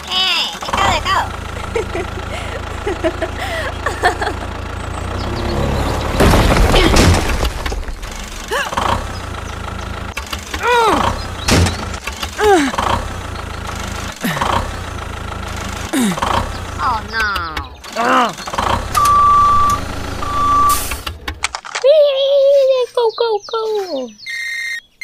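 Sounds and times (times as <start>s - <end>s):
tractor engine hum: 0.0s - 24.8s
squeaky rising and falling calls: 22.3s - 25.0s.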